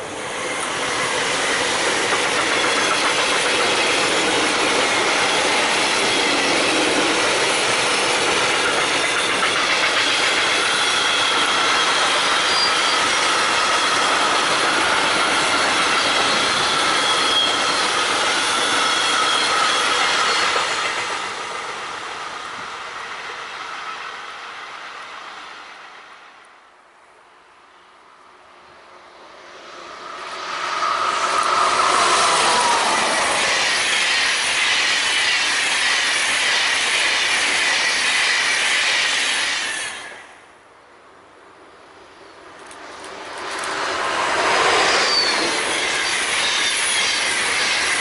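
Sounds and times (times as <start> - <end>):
train wheels clattering on rail: 0.2 - 25.9, 30.3 - 40.3, 42.5 - 48.0
wheels squealing: 7.9 - 21.0, 44.4 - 48.0.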